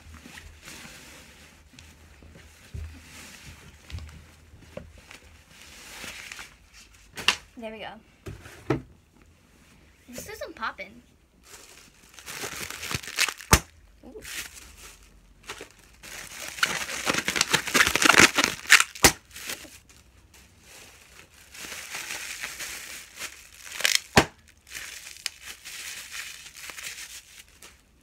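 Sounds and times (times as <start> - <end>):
plastic packaging crinkling: 11.4 - 28.0
plastic snapping: 16.6 - 19.2.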